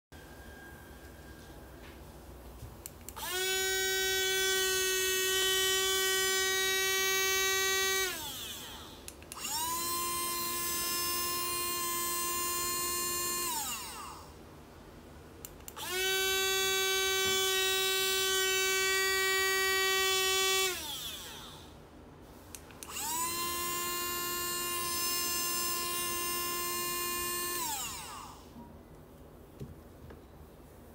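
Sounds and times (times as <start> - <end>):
blender motor whining: 3.2 - 14.3, 15.7 - 21.8, 22.8 - 28.6.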